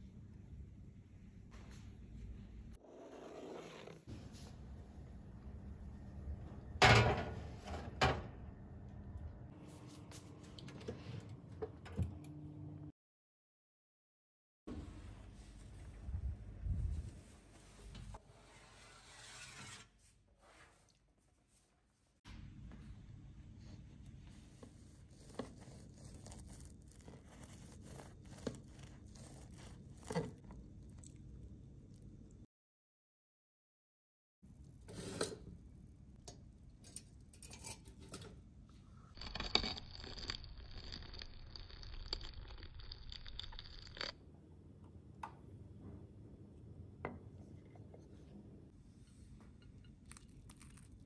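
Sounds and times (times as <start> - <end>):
bread knife sawing through bread: 24.8 - 30.2.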